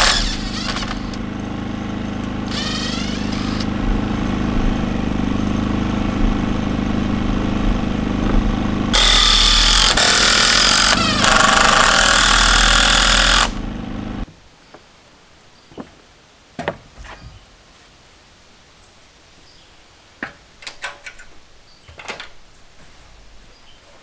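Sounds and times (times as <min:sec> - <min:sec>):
loud power tool running: 0:00.0 - 0:14.2
steady machine hum: 0:00.0 - 0:14.2.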